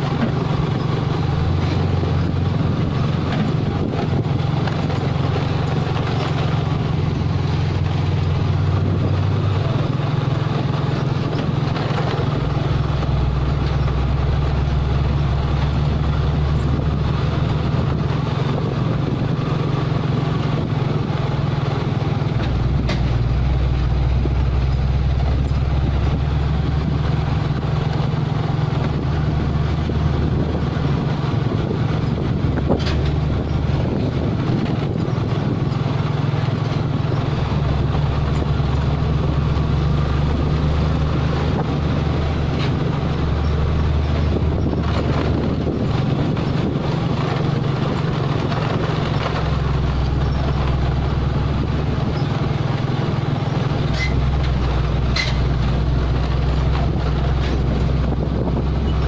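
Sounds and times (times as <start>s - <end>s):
diesel truck engine running: 0.0s - 59.0s
tyre and wind noise: 0.0s - 59.0s.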